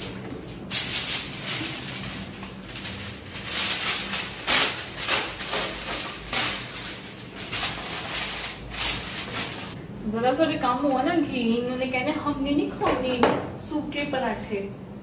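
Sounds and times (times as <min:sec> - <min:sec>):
kitchen rustles and clatters: 0:00.0 - 0:09.8
steady low hum: 0:00.0 - 0:15.0.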